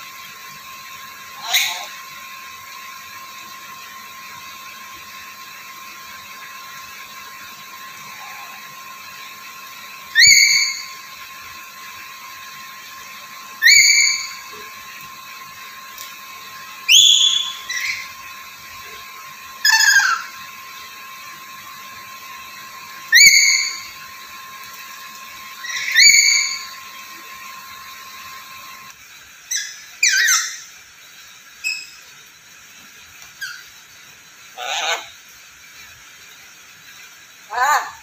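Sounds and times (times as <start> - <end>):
parrot giving rising whistled calls: 10.1 - 11.0, 13.5 - 14.6, 16.8 - 18.2, 19.6 - 20.4, 23.0 - 24.0, 25.6 - 26.8, 29.5 - 30.7.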